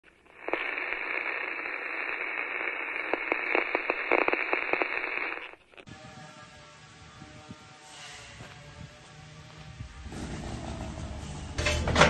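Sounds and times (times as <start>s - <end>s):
crackles and pops: 0.0s - 5.9s
radio static hiss: 0.0s - 6.3s.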